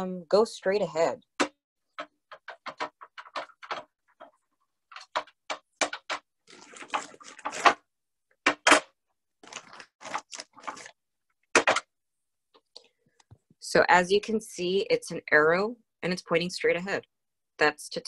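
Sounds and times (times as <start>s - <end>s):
plastic bag crinkling: 6.4s - 7.8s, 9.4s - 11.0s.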